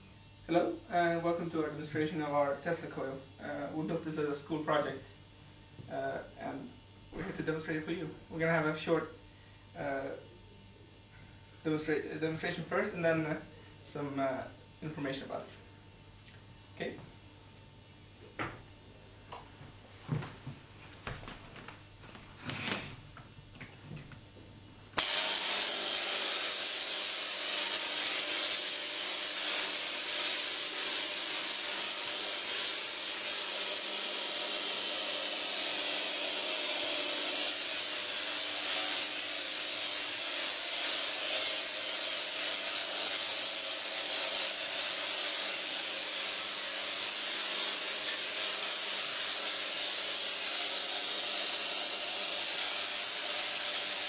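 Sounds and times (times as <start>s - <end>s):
tesla coil buzzing hiss: 25.0s - 54.0s.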